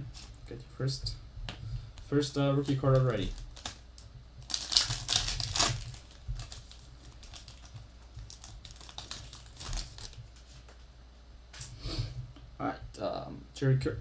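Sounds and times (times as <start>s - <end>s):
foil wrapper crinkling: 0.1s - 0.4s, 2.6s - 3.8s, 4.4s - 10.7s.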